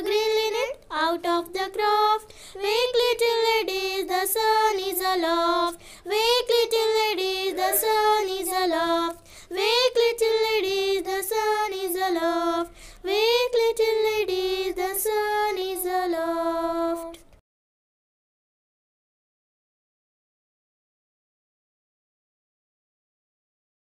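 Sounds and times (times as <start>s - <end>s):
child singing: 0.0s - 17.3s.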